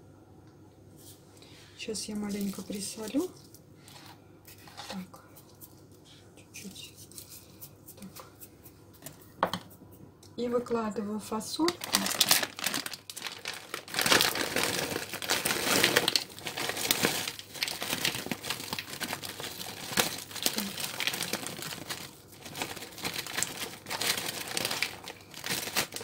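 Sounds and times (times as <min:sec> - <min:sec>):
plastic bag crinkling: 0:02.1 - 0:05.1, 0:11.6 - 0:26.0
frozen beans clicking into bowl: 0:11.7 - 0:21.9.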